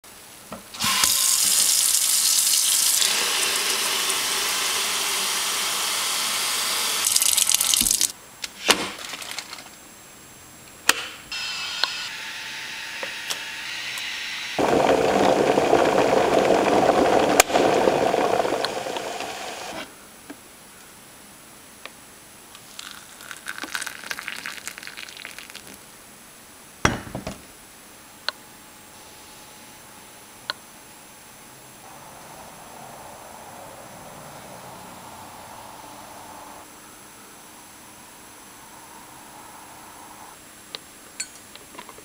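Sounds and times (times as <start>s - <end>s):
electric kettle heating: 0.5s - 8.1s, 13.0s - 19.9s
faucet water running into sink: 0.8s - 5.6s, 7.0s - 8.1s.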